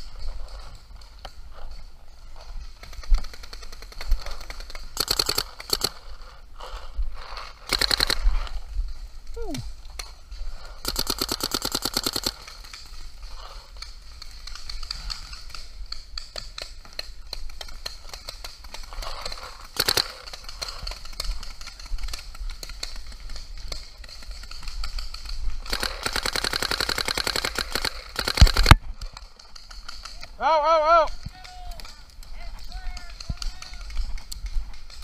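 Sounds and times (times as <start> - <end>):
paintball marker shots: 25.6 - 28.8.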